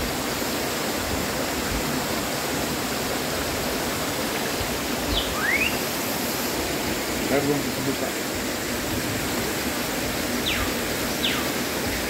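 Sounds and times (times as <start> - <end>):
waterfall rushing: 0.0 - 12.0
rising whistle-like call: 5.1 - 5.8, 10.5 - 11.5.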